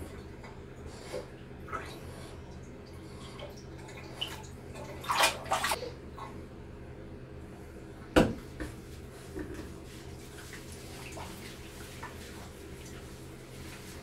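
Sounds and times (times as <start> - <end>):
steady low hum: 0.0 - 14.0
bathwater splashing: 0.9 - 5.9, 8.4 - 14.0.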